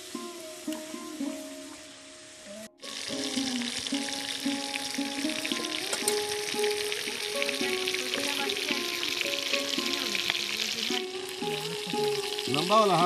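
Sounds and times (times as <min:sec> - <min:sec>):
background music melody: 0:00.0 - 0:13.0
fish frying in hot oil: 0:00.0 - 0:13.0.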